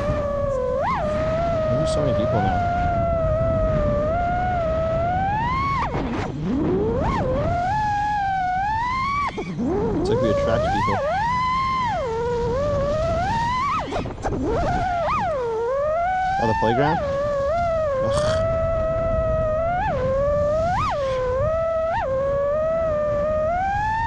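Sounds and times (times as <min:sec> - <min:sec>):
quadcopter motors whining: 0:00.0 - 0:24.0.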